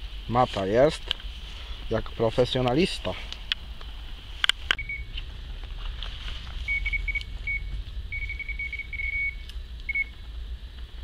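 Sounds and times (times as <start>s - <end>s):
bite alarm beeping: 4.8s - 5.2s, 6.7s - 10.2s.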